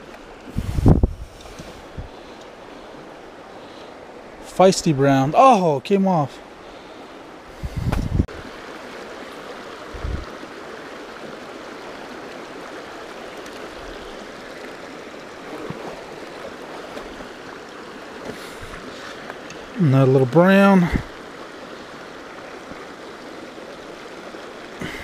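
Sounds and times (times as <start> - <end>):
creek water rushing over stones: 0.0 - 25.0
dull low bumps: 7.6 - 8.3.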